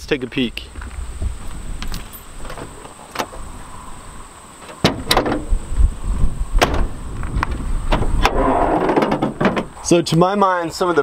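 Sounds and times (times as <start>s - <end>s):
car door and latch clunks: 4.8s - 5.5s, 6.6s - 9.7s.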